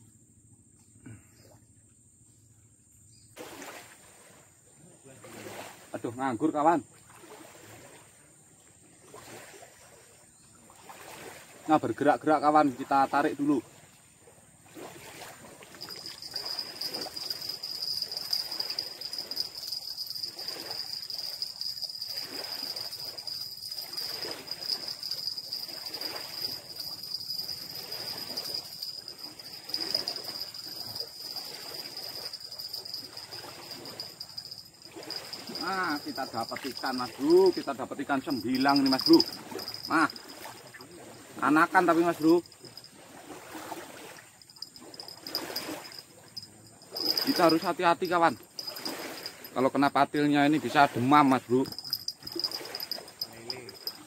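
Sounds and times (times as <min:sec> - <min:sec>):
river flowing: 0:14.6 - 0:54.0
rustle of movement: 0:14.8 - 0:41.1, 0:43.6 - 0:49.7, 0:50.7 - 0:54.0
steady high-pitched tone: 0:15.8 - 0:40.6, 0:44.8 - 0:49.6
fishing reel cranking: 0:15.8 - 0:40.8, 0:41.9 - 0:42.9, 0:44.5 - 0:49.6, 0:51.5 - 0:54.0.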